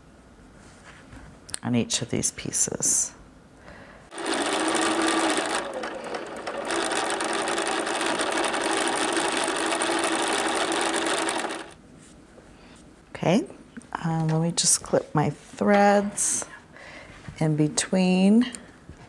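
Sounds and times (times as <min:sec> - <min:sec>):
sewing machine stitching: 0:04.1 - 0:11.8.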